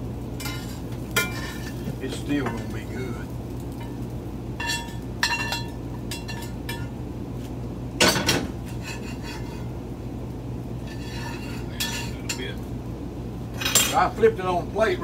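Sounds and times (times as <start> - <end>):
steady low hum: 0.0 - 15.0
frying pan and plate clinking: 0.4 - 2.8, 3.8 - 4.0, 4.6 - 7.0, 8.0 - 9.7, 10.8 - 12.6, 13.6 - 14.1
loud metal clank: 8.0 - 8.6.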